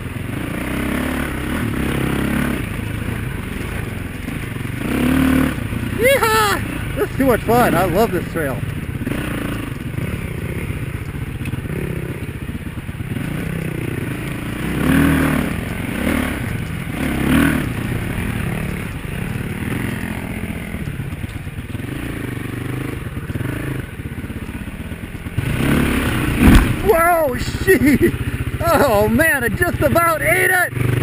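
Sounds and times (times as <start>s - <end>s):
dirt bike engine revving: 0.0s - 31.0s
bike clattering and scraping: 25.3s - 27.1s.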